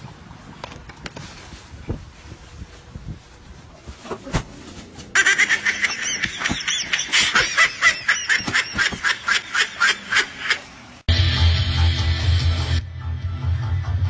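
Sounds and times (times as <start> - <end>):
high-pitched laughter: 5.2 - 10.7.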